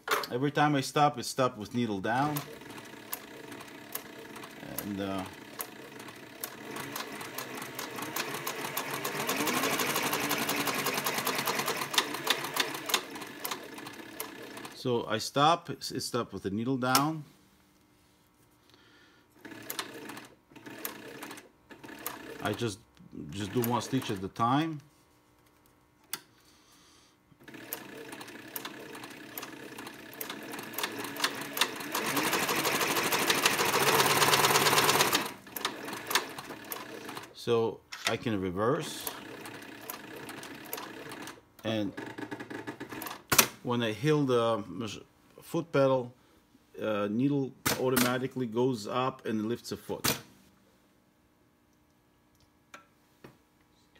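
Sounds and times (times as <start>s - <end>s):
faint motor hum: 0.3s - 53.9s
sewing machine stitching clatter: 2.2s - 14.8s, 27.4s - 37.3s.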